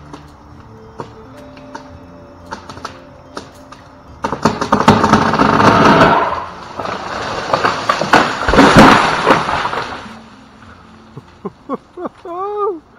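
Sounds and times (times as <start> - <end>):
tree limb crashing through branches: 4.2 - 10.3.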